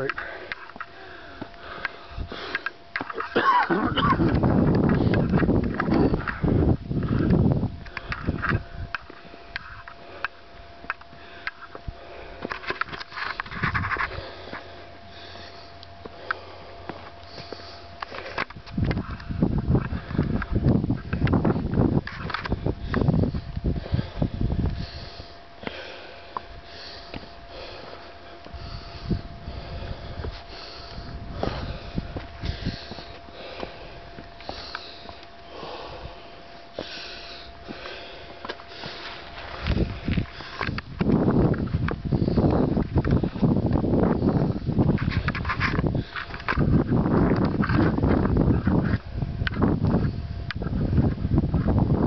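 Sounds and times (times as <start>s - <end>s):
heavy breathing: 0.0s - 49.1s
person panting heavily: 0.0s - 49.2s
footsteps on rock: 0.1s - 14.7s, 30.2s - 35.3s, 37.6s - 43.8s.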